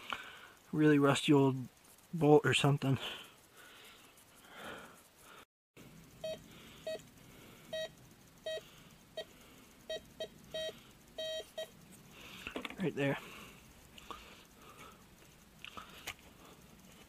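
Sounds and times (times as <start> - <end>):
metal detector beeps: 6.2 - 7.0, 7.7 - 9.3, 9.9 - 11.8.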